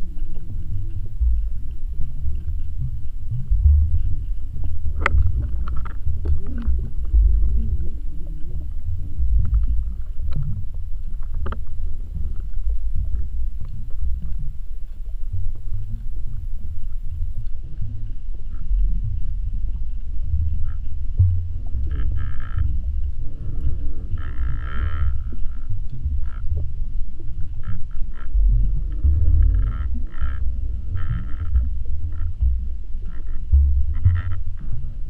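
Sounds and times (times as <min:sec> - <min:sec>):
faint clicks: 0:00.0 - 0:21.0, 0:23.5 - 0:28.3
underwater rumble of moving water: 0:00.0 - 0:35.0.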